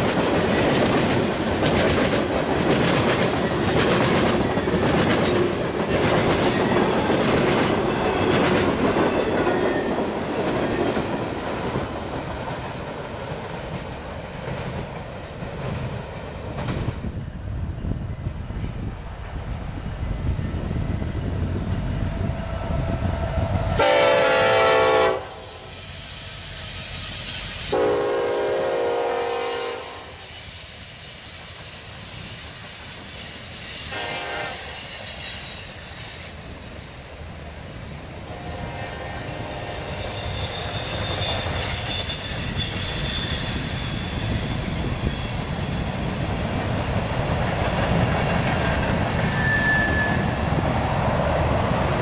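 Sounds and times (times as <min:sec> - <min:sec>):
train air horn blasts: 0:23.7 - 0:25.8, 0:27.7 - 0:30.3, 0:33.9 - 0:34.9, 0:38.3 - 0:41.4
high-pitched wheel squeal: 0:25.5 - 0:27.8, 0:30.2 - 0:47.0, 0:49.2 - 0:51.2.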